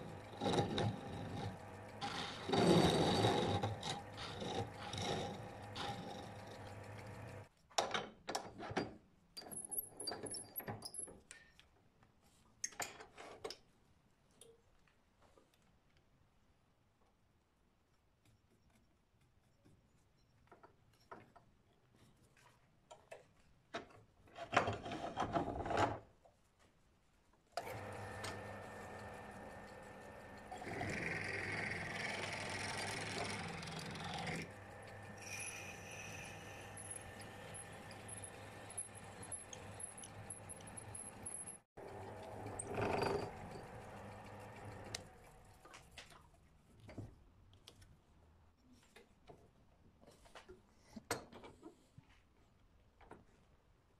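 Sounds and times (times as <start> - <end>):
drill bit scraping into wood: 0.0 - 7.4, 27.6 - 41.6, 42.4 - 45.0
lathe motor hum and whine: 0.0 - 7.5, 27.6 - 45.2
loud rasping burst: 27.6 - 40.8.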